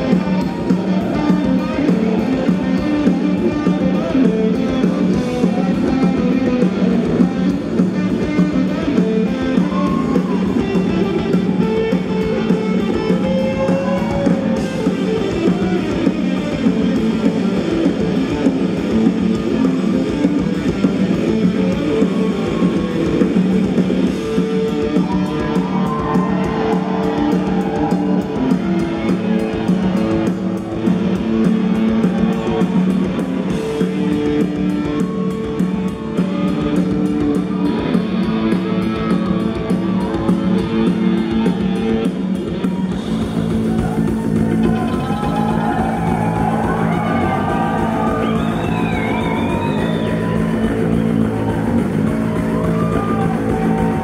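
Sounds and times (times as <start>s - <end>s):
drum kit: 0.0s - 54.0s
electric guitars: 0.0s - 54.0s.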